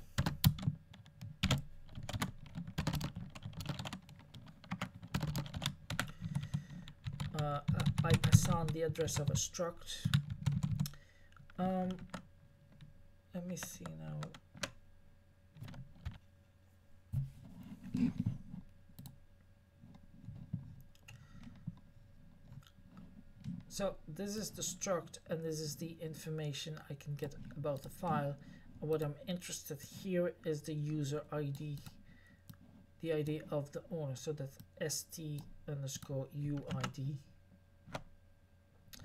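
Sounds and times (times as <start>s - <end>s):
typing on computer keyboard: 0.2s - 9.3s, 10.1s - 12.2s.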